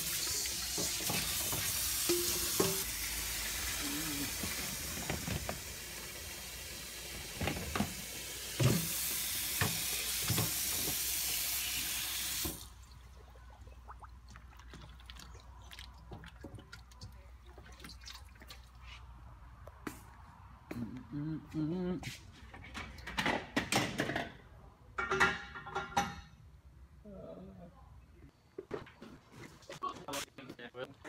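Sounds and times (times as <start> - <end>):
faucet running into steel bowl: 0.0 - 12.7.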